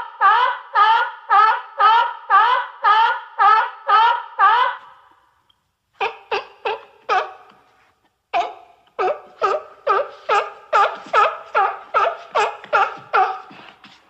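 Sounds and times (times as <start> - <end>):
seal barking: 6.0 - 7.6, 8.4 - 13.8.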